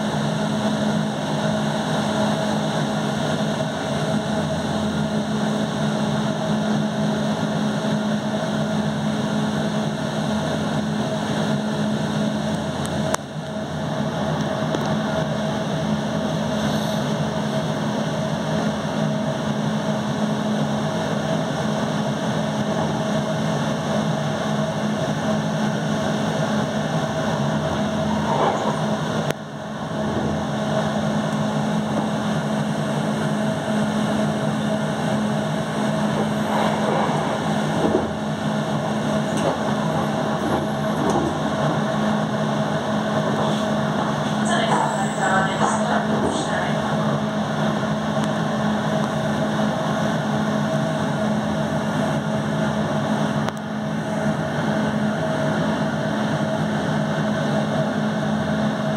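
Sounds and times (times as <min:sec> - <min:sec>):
train wheels rolling on rails: 0:00.0 - 0:57.6
low hum: 0:23.8 - 0:50.0
higher hum: 0:23.8 - 0:50.1.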